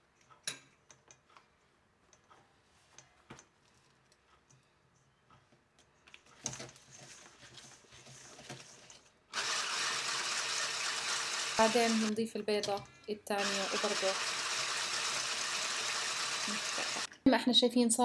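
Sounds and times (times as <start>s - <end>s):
electric mixer motor humming: 9.4s - 12.2s, 13.4s - 17.1s.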